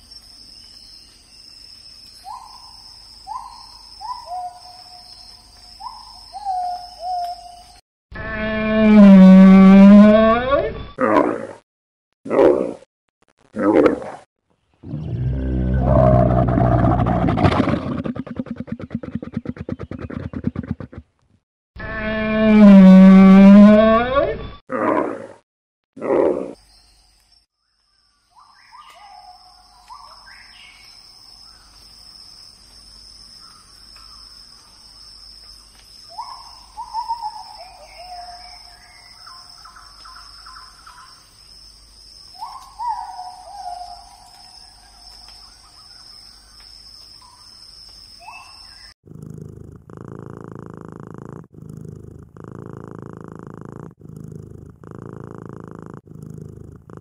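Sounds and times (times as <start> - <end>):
kitten purring: 49.0 - 57.0.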